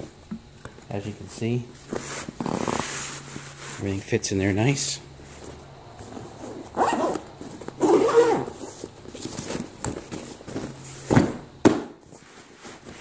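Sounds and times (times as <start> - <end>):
zipper being pulled shut: 6.3 - 8.8.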